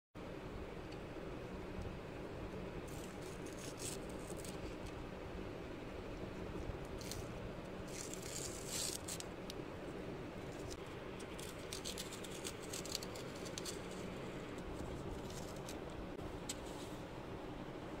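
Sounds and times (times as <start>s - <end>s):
steady low hum: 0.2s - 18.0s
tape peeling off paper: 7.9s - 9.6s, 10.5s - 16.0s.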